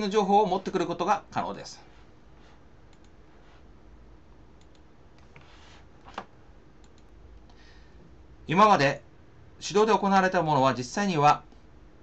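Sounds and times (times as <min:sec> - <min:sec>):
low room noise: 0:00.0 - 0:12.0
computer mouse clicks: 0:02.9 - 0:03.2, 0:04.6 - 0:07.6.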